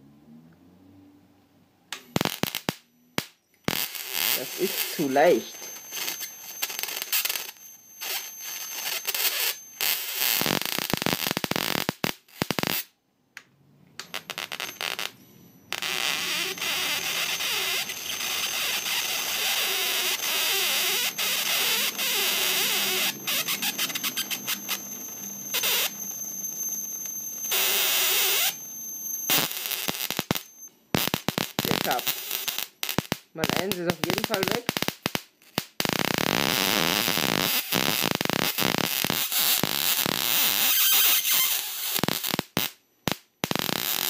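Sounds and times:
high-pitched whine: 0:02.0 - 0:10.8, 0:14.0 - 0:30.8, 0:31.6 - 0:32.8
electric arc crackling and buzzing: 0:02.0 - 0:12.9, 0:14.0 - 0:44.0.

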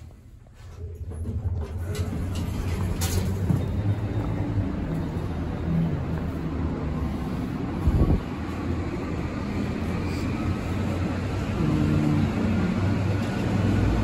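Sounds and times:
parking garage rumble: 0:00.0 - 0:14.0
elevator doors sliding shut: 0:01.3 - 0:04.2.

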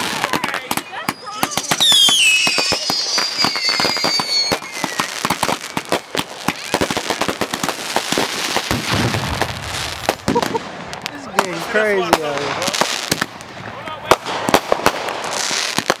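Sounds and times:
whistling firework shells: 0:00.0 - 0:07.7
fireworks popping and crackling: 0:00.0 - 0:16.0.

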